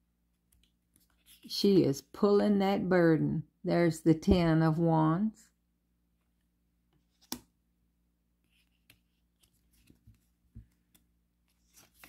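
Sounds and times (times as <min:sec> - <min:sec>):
card deck taps and slides: 0:07.1 - 0:07.5.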